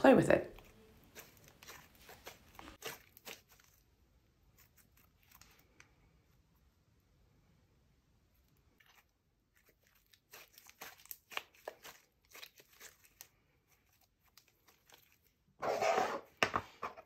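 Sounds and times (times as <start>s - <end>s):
slime crackling and squishing: 0.5s - 5.7s, 8.6s - 15.6s.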